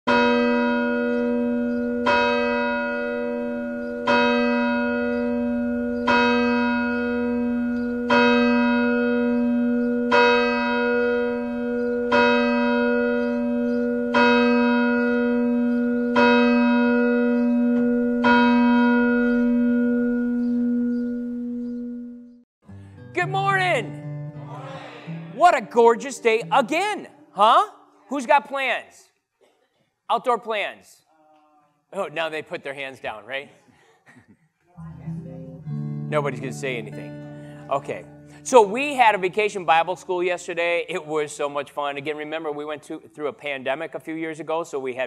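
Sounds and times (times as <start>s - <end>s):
church bell tolling: 0.1s - 22.4s, 35.8s - 39.9s.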